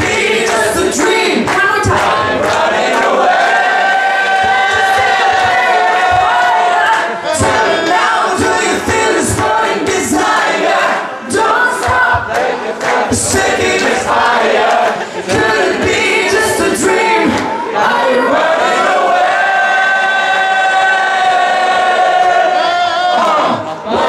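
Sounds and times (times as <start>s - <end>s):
audience singing along: 0.0s - 24.0s
woman and man singing duet: 15.3s - 18.3s.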